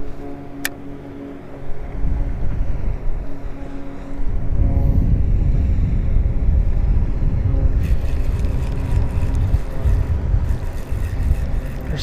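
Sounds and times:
wind buffeting microphone: 1.5s - 12.0s
spinning reel rattling clicks: 7.8s - 12.0s.

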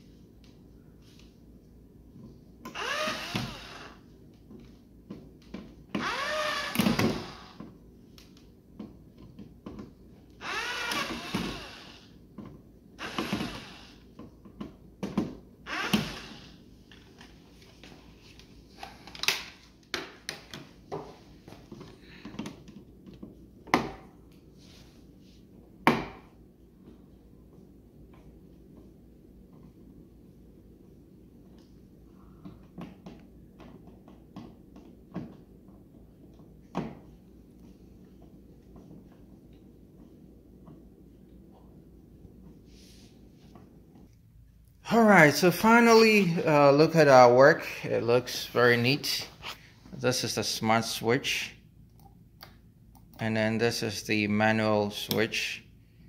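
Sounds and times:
cordless drill driving screws: 2.7s - 4.0s, 6.0s - 7.6s, 10.4s - 12.0s, 13.0s - 14.0s, 15.7s - 16.5s.

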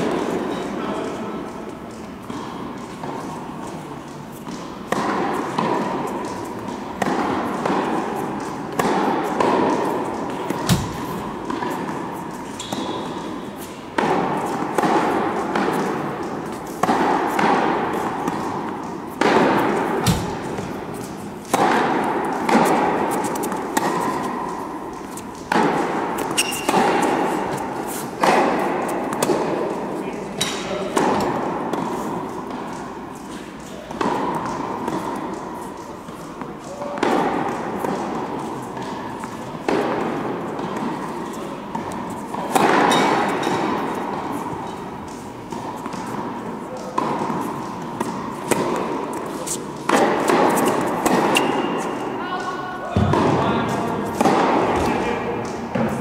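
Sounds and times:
tennis ball bouncing: 1.7s - 52.2s, 52.8s - 56.0s
tennis ball hit by racket: 4.1s - 52.2s, 52.9s - 56.0s.

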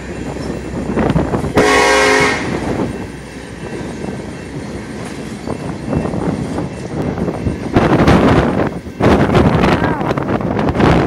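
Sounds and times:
freight train rolling: 0.0s - 11.0s
wind buffeting microphone: 0.0s - 11.0s
train horn blast: 1.5s - 2.7s.

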